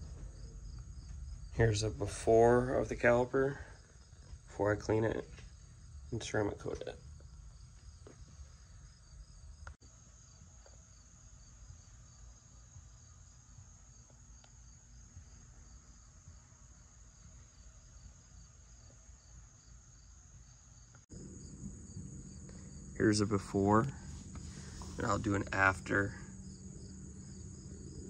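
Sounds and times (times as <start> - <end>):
low background rumble: 0.0 - 9.8, 21.1 - 28.0
crickets chirping: 0.0 - 28.0.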